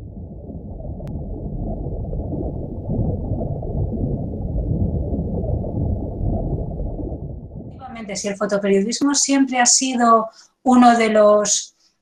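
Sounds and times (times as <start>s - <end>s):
muffled underwater rumbling and bubbling: 0.0s - 8.9s.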